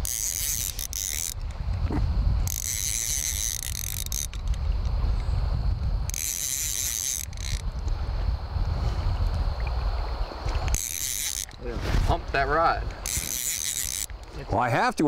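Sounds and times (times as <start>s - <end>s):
fly reel drag buzzing: 0.0s - 1.6s, 2.4s - 5.2s, 6.0s - 7.9s, 10.6s - 14.3s
steady low rumble: 1.4s - 2.5s, 4.4s - 6.1s.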